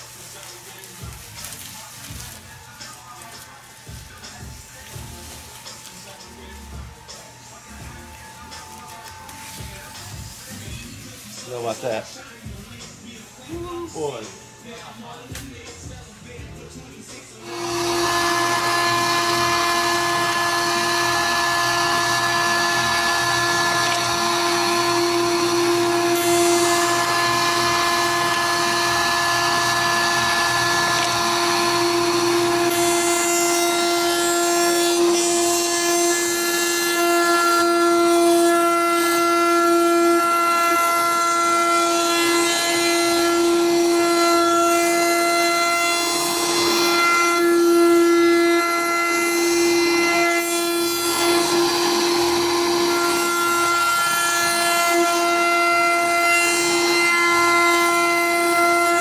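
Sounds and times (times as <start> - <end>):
router whining: 17.4 - 59.0.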